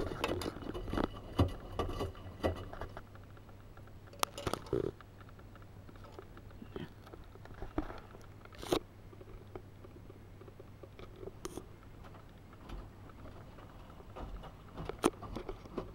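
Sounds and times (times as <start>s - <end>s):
drum crackles: 0.0s - 15.9s
washing machine humming: 0.0s - 15.9s.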